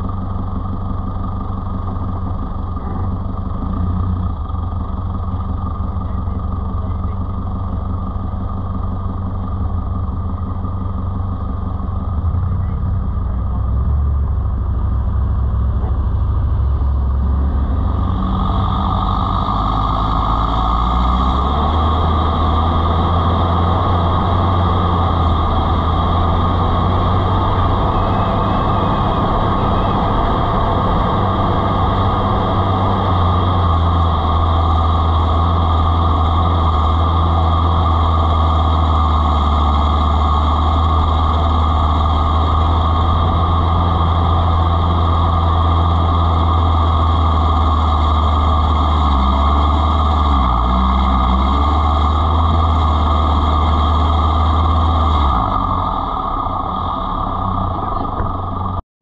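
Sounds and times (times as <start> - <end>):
vehicle engine droning: 0.0 - 58.8
broad rushing noise: 15.8 - 58.8.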